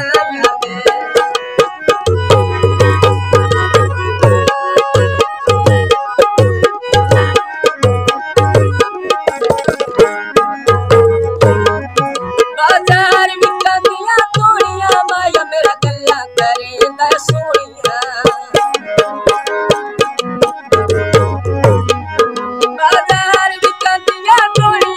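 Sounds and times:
man singing: 0:00.0 - 0:05.3, 0:09.9 - 0:19.8
harmonium folk melody: 0:00.0 - 0:24.9
tabla drumming: 0:00.0 - 0:24.9.

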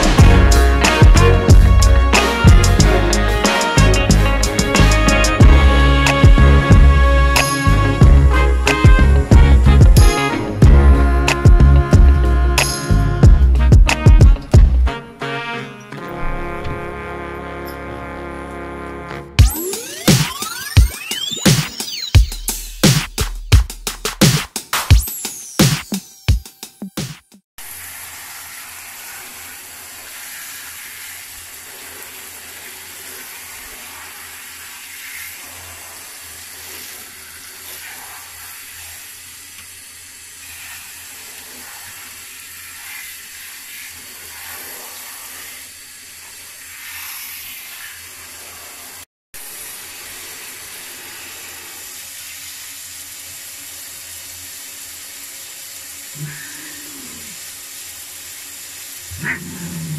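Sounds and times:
shower water spraying: 0:00.0 - 0:15.0, 0:27.6 - 0:59.9.

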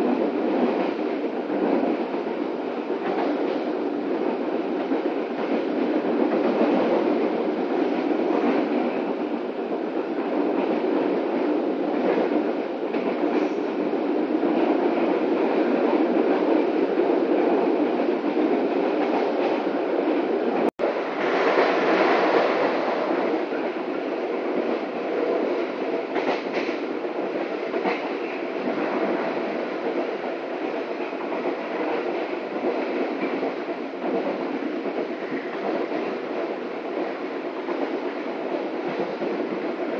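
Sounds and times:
train wheels rumbling on rails: 0:00.0 - 0:39.9.

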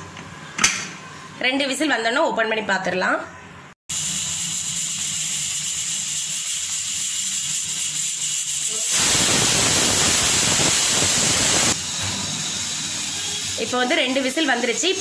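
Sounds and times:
pressure cooker whistle: 0:03.9 - 0:14.3
pressure cooker hissing steam: 0:03.9 - 0:15.0.

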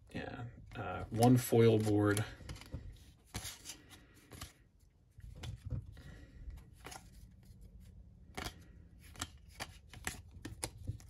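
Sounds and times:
trading cards flipped by hand: 0:01.6 - 0:04.7, 0:06.6 - 0:11.0.

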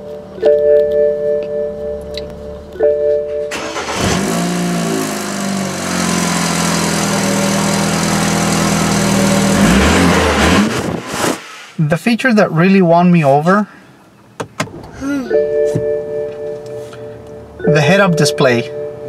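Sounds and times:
seatbelt warning chime: 0:00.4 - 0:03.9, 0:15.2 - 0:19.0
car engine starting and idling: 0:02.0 - 0:12.1.

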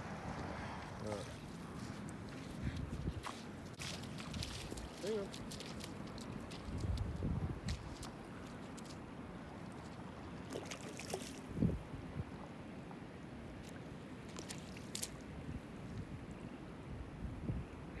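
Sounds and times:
wind rumbling on microphone: 0:00.0 - 0:10.4, 0:11.1 - 0:12.6, 0:14.9 - 0:18.0
water splashing: 0:03.2 - 0:11.6, 0:13.6 - 0:15.3.

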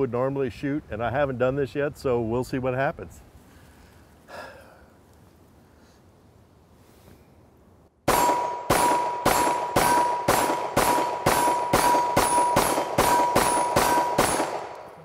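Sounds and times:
steel plate target ringing: 0:08.1 - 0:14.9
pistol shots: 0:08.1 - 0:15.0.

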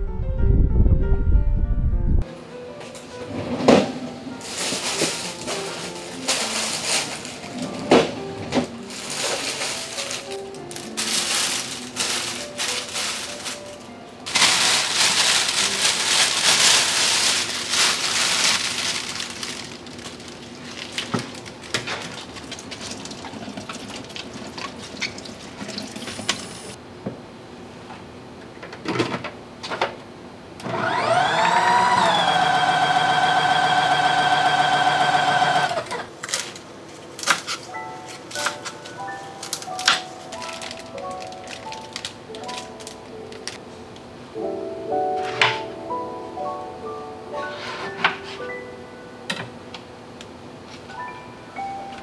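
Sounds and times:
faint background music: 0:00.0 - 0:22.0, 0:30.8 - 0:50.1, 0:50.7 - 0:52.0
plastic bag crinkling: 0:04.4 - 0:07.8, 0:08.7 - 0:25.3, 0:38.3 - 0:43.6
tap water running: 0:22.4 - 0:26.8
salad spinner whirring: 0:30.6 - 0:35.9.

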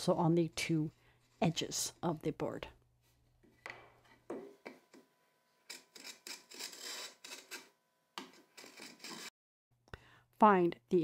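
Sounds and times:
marking gauge scratching wood: 0:05.7 - 0:09.3.

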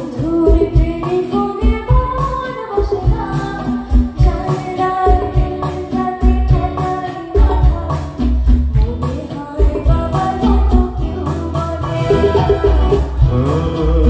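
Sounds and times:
steady drum beat: 0:00.0 - 0:14.0
person singing: 0:08.8 - 0:14.0.

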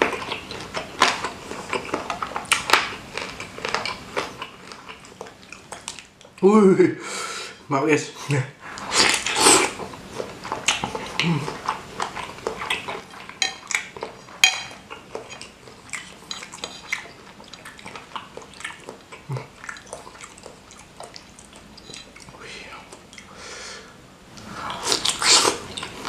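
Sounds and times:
cutlery clinking and scraping bowl: 0:12.1 - 0:18.0, 0:21.8 - 0:22.2.

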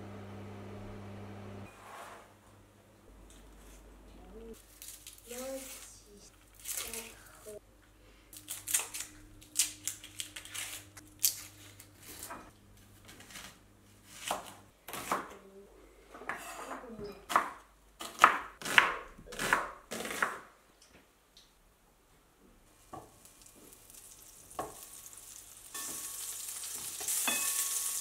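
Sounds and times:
onion skin crackling and tearing: 0:04.6 - 0:07.2, 0:08.3 - 0:12.3, 0:23.1 - 0:27.2.

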